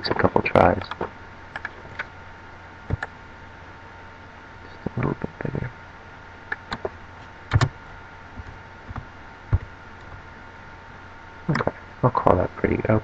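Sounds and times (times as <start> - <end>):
low electrical hum: 0.0 - 13.0
keyboard and mouse clicks: 0.8 - 2.1, 2.9 - 3.1, 6.5 - 7.7.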